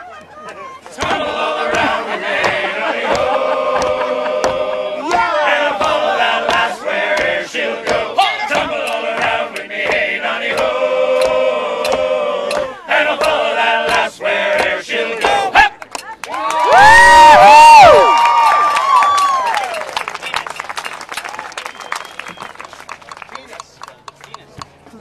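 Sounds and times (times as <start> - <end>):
men singing together: 0.9 - 15.7
sharp percussive strikes: 1.0 - 16.1.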